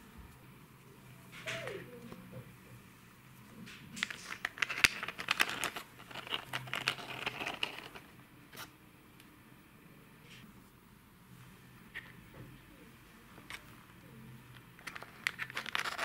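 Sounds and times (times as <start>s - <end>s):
plastic toy car clicking and rattling: 4.0s - 8.0s, 14.8s - 16.0s.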